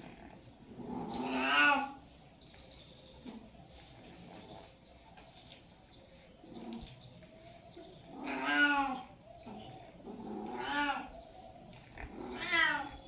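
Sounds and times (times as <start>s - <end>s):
cats yowling: 0.0s - 2.1s, 6.5s - 13.0s.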